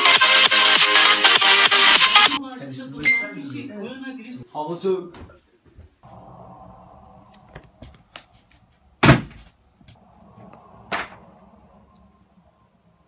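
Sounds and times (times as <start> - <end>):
faint steady hum: 9.6 - 13.0.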